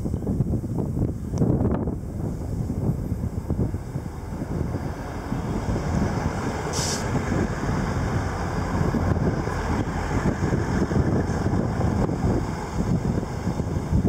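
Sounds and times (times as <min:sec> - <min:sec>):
train rumbling on rails: 0:00.0 - 0:14.0
short hiss: 0:06.7 - 0:07.2.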